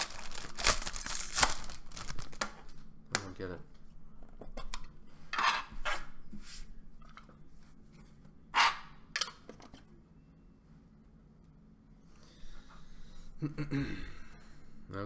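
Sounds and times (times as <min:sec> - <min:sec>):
plastic wrapping rustling: 0:00.0 - 0:02.8.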